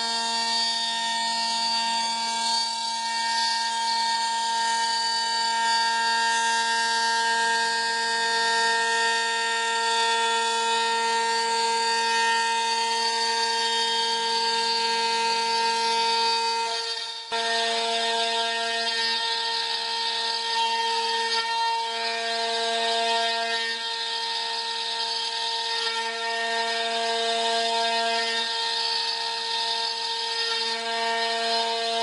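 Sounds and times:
router spindle whining: 0.0s - 32.0s.

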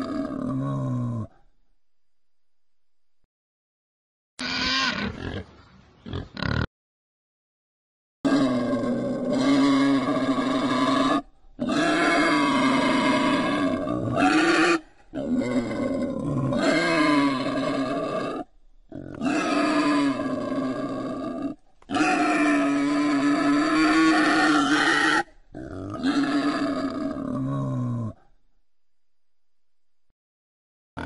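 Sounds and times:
wild boar grunting cries: 8.3s - 28.4s.

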